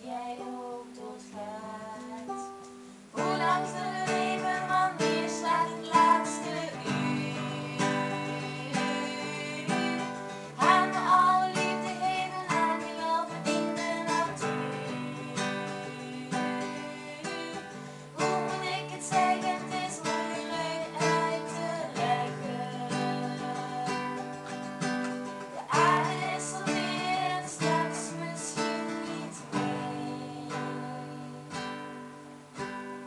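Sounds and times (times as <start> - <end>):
girl singing: 0.0 - 32.1
classical guitar strumming: 0.4 - 33.0.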